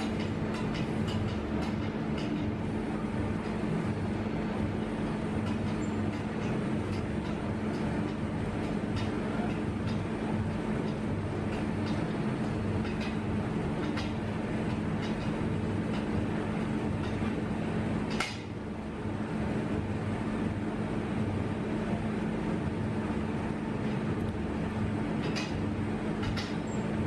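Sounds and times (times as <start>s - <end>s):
low mechanical hum: 0.0s - 27.0s
loud metallic snap: 18.1s - 18.6s.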